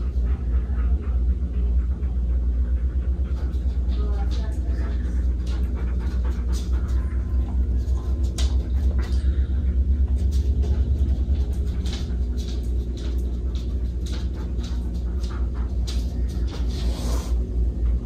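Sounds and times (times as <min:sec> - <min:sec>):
low rumble: 0:00.0 - 0:18.0
dog claws clicking on wooden floor: 0:10.2 - 0:16.8.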